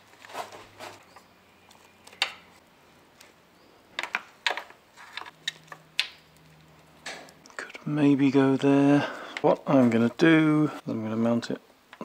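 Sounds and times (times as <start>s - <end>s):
wiring rustling: 4.0s - 7.8s.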